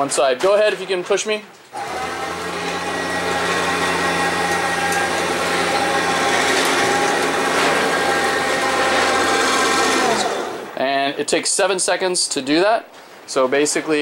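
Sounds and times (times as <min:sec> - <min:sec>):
electric winch motor humming: 0:01.7 - 0:10.8.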